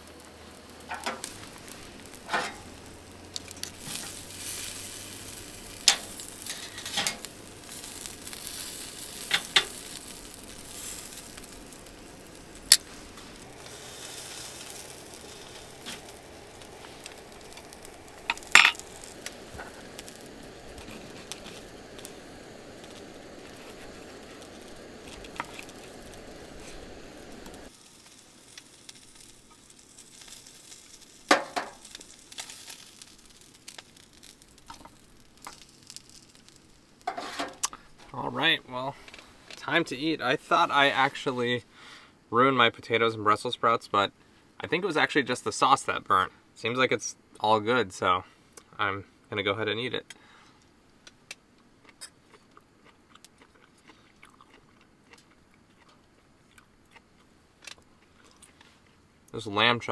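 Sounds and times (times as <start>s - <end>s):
meat sizzling on a grill: 0.0s - 44.0s.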